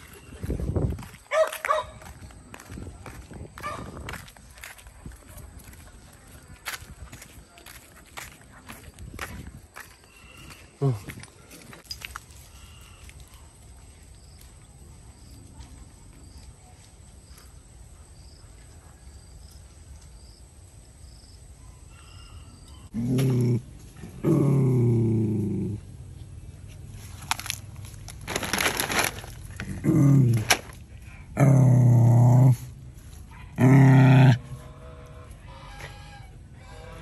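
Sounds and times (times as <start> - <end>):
dog growling: 22.9 - 25.8, 29.6 - 30.5, 31.3 - 32.7
plastic food packet crinkling: 27.1 - 29.8.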